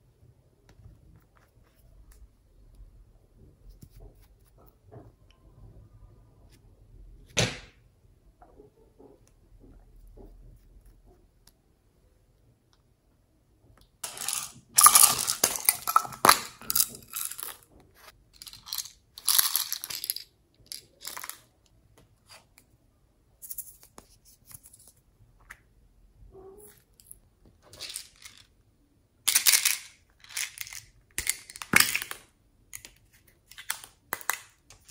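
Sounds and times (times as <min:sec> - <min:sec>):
plastic containers crackling and rattling: 0:14.0 - 0:17.7.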